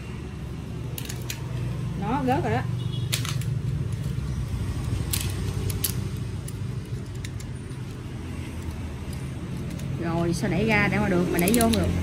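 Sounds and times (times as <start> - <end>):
metal tool clicks and clinks: 0.9 - 1.6, 3.1 - 12.0.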